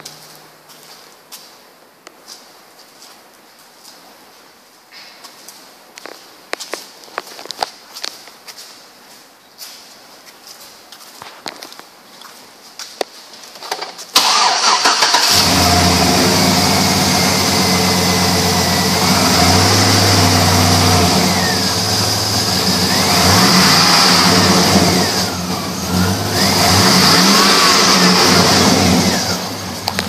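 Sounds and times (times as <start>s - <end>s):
car engine cranking and starting: 13.7s - 30.0s
car engine idling and revving: 14.2s - 30.0s.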